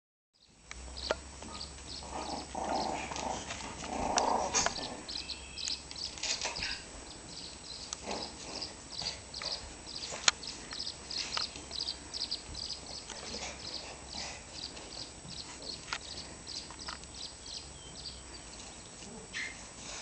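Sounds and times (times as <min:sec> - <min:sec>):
dogs scuffling: 0:01.4 - 0:07.0, 0:08.0 - 0:17.0.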